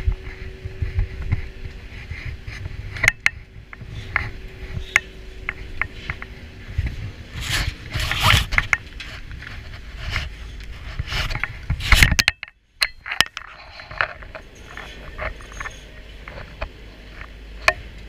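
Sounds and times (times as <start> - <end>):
scraping and rustling: 0.0 - 12.3, 13.0 - 17.4
glove rubbing against camera: 0.1 - 3.0, 3.7 - 12.0.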